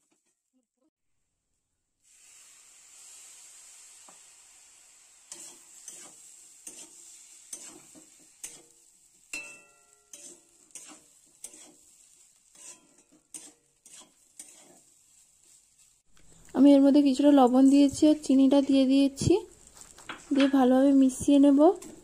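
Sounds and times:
food sizzling in metal pan: 0:02.0 - 0:22.0
steel spatula scraping a pan: 0:05.1 - 0:16.0.

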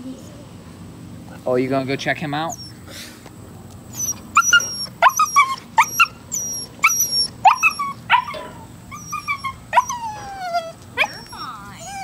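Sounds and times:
puppy barking in high yips: 0:04.0 - 0:10.3.

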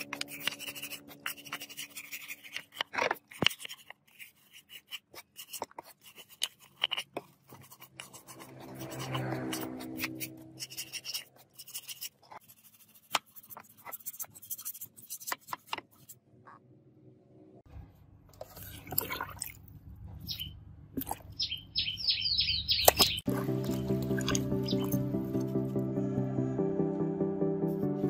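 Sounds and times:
wire brush scrubbing metal: 0:07.5 - 0:12.2.

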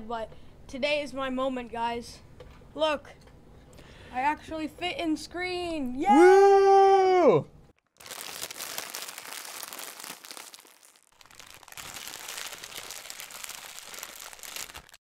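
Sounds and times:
child shouting: 0:06.0 - 0:06.8
dense crinkling crackling noise: 0:07.8 - 0:15.0.

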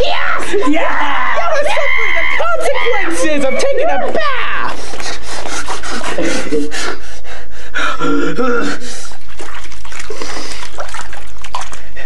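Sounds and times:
water sloshing in a bathtub: 0:08.8 - 0:12.0.

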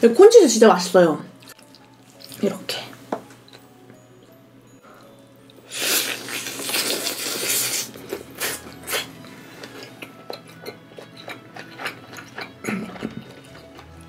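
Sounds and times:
chewing with wet mouth clicks: 0:01.4 - 0:02.4, 0:06.4 - 0:14.0
loud bite into food: 0:05.7 - 0:09.1.

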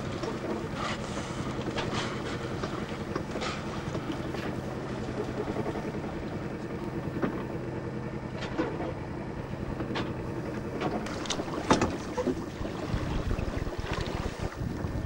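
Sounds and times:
boat engine running: 0:00.0 - 0:15.0
water rushing past hull: 0:00.0 - 0:15.0
sharp knocks or splashes: 0:10.8 - 0:12.4
wind on microphone: 0:12.0 - 0:15.0.

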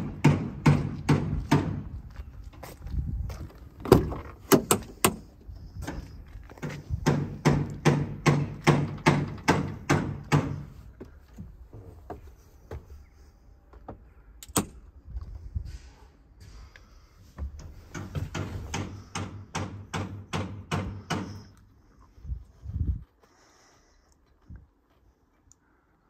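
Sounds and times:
truck door latch clicks and clunks: 0:03.8 - 0:06.0, 0:14.4 - 0:14.8
regular thuds: 0:17.3 - 0:21.5.

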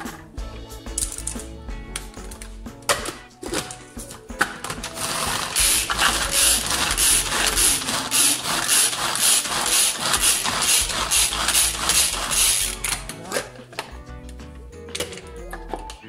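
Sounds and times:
food chopper ratcheting whir: 0:04.7 - 0:13.2.

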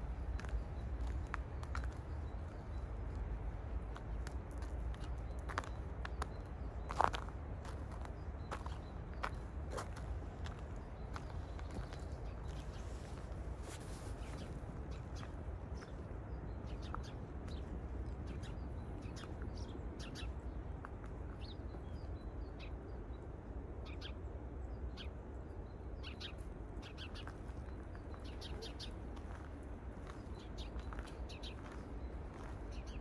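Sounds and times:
birds chirping: 0:23.9 - 0:33.0.

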